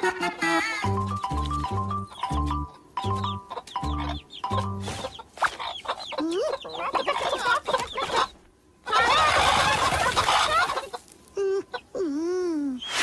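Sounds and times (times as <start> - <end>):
cartoon hens clucking: 0.1 - 12.0
frantic squawking and scuffling: 3.0 - 11.9.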